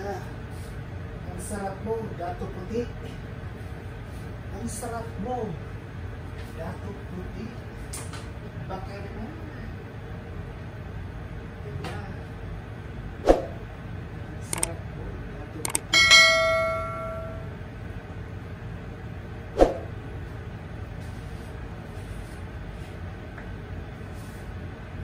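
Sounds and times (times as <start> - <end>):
gas burner low rumble: 0.0 - 25.0
sharp clicks: 14.5 - 14.7, 15.7 - 15.9
bell ding: 15.7 - 17.6.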